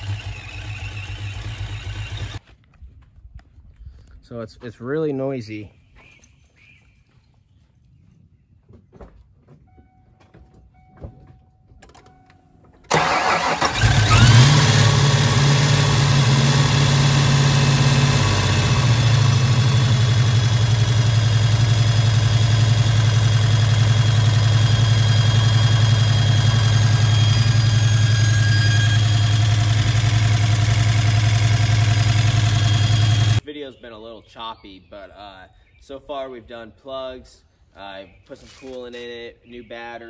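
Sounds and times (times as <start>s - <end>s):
car engine cranking and idling: 0.0s - 2.4s, 11.7s - 33.4s
supercharger whine: 0.0s - 2.4s, 12.9s - 33.4s.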